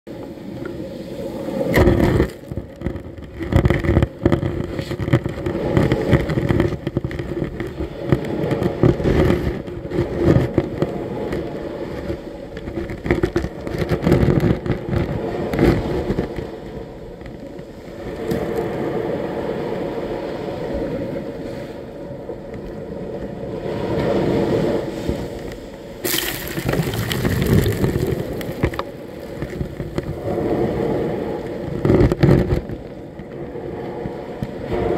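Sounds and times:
waves washing over sand: 0.8s - 16.6s, 23.4s - 34.9s
crackling: 26.0s - 30.6s.

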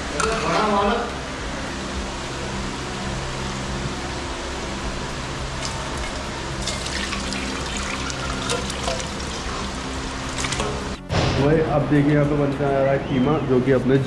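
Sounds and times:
background hum: 0.0s - 11.1s
gravy slopping and pouring: 5.6s - 10.8s.

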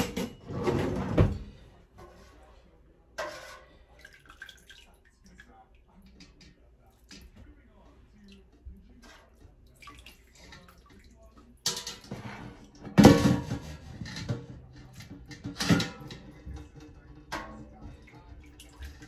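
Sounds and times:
broth splashing and dripping: 4.0s - 6.2s, 9.5s - 11.6s.

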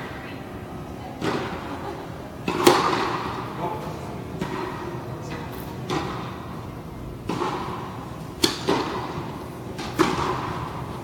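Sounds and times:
tennis ball bouncing on court: 2.4s - 3.3s, 4.4s - 4.8s, 7.2s - 11.0s
tennis ball struck by rackets: 2.4s - 3.4s, 4.4s - 4.8s, 5.6s - 6.4s, 7.2s - 11.0s.

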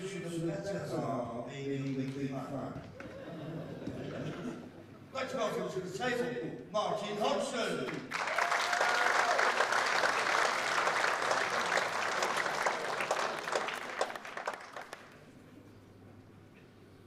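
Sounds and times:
audience applauding: 7.9s - 15.4s.

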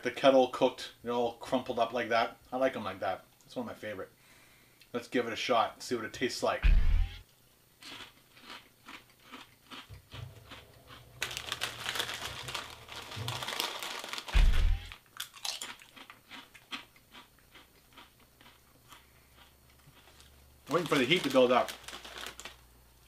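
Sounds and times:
low thump: 6.6s - 7.2s, 14.3s - 14.9s
chips crunching when chewed: 7.8s - 22.6s
chip bag crinkling: 7.8s - 22.8s.

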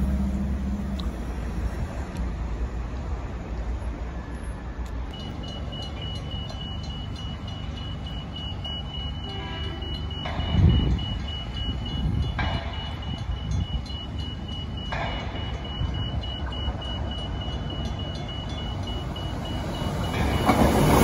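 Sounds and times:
low traffic rumble: 0.0s - 21.0s
level crossing warning beeping: 5.1s - 21.0s.

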